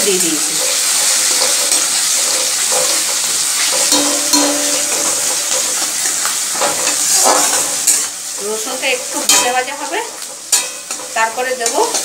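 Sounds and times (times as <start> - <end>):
garlic sizzling in oil: 0.0 - 12.0
metal spatula scraping pan: 0.6 - 8.1.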